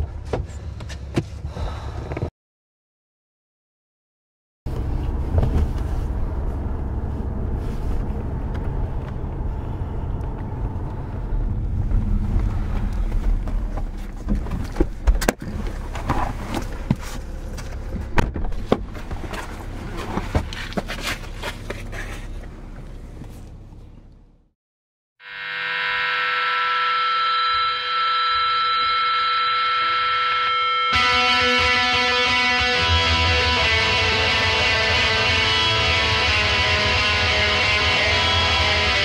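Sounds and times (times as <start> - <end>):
car interior rumble: 4.7 - 24.4.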